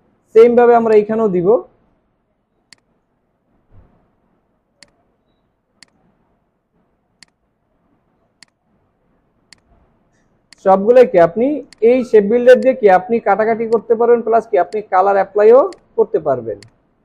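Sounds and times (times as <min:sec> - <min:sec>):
computer mouse clicks: 0:02.7 - 0:02.9, 0:08.4 - 0:08.6, 0:11.7 - 0:11.9.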